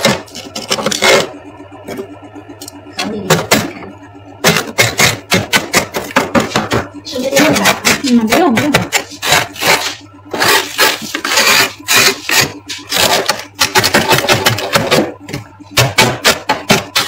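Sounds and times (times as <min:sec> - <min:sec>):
frost being scraped: 0:08.9 - 0:13.3.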